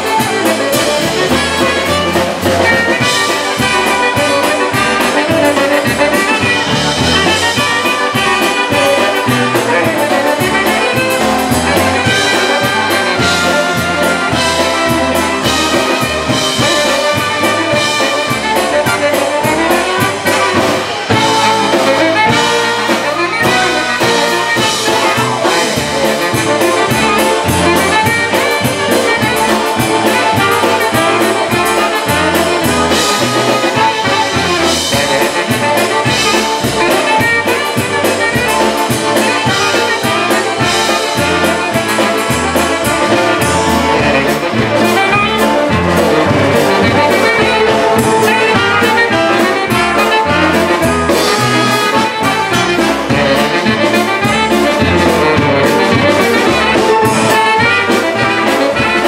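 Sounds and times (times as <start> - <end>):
accordion: 0.0 - 59.0
bass pulse: 0.0 - 59.0
drums: 0.0 - 59.0
tenor saxophone: 0.0 - 59.0
trumpets: 0.0 - 59.0.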